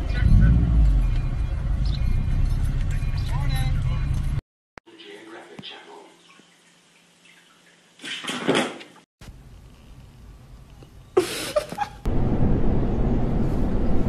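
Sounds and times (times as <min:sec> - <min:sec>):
subway train rumbling: 0:12.1 - 0:14.0.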